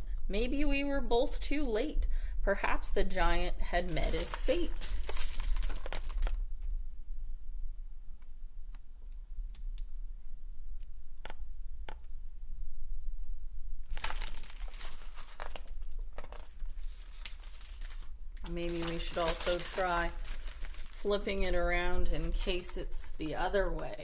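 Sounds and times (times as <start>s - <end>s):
low steady hum: 0.0s - 24.0s
book pages rustling: 3.8s - 6.4s, 13.9s - 24.0s.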